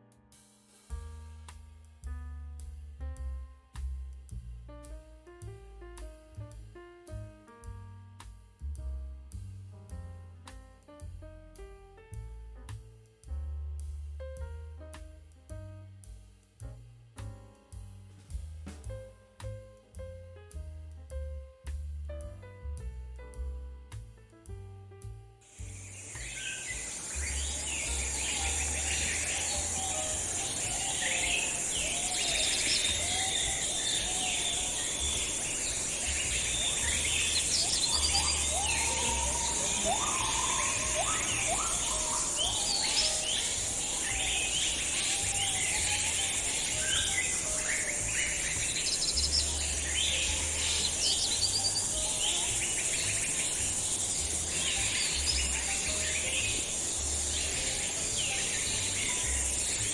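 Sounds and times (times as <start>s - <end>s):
birds chirping: 25.5s - 59.9s
high insect buzz: 25.5s - 59.9s.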